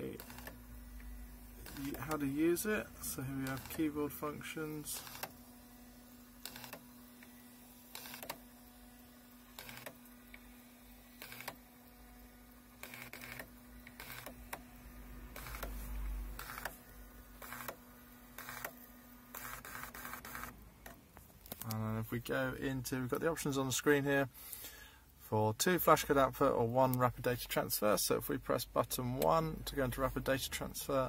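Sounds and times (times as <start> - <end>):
printer buzzing bursts: 0.0 - 20.7
faint steady hum: 0.0 - 31.0.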